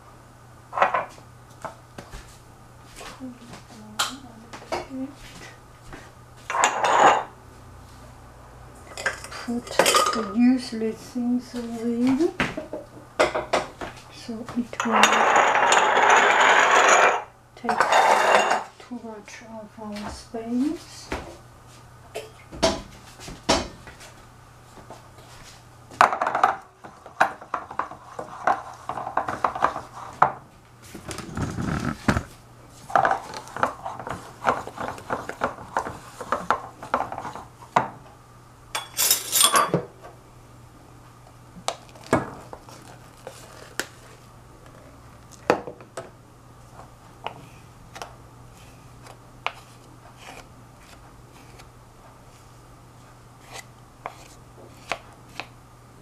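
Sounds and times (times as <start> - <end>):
wooden spoon scraping a saucepan: 26.8 - 30.3, 53.4 - 55.4.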